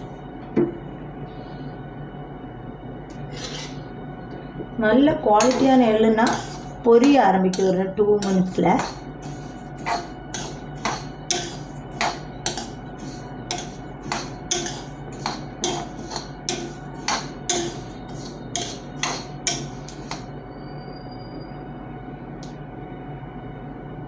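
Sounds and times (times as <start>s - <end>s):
spoon scraping iron pan: 3.3s - 3.8s, 5.4s - 20.3s.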